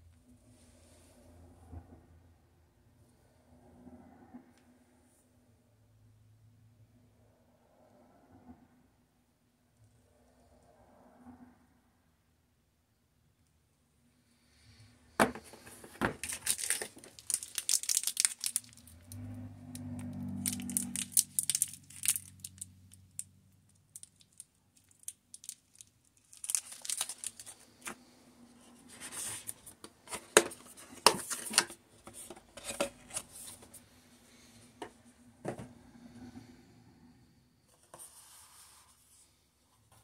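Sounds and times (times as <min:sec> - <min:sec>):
plastic packaging crinkling: 0:15.4 - 0:19.0, 0:20.4 - 0:28.0
small parts clicking: 0:20.4 - 0:23.3.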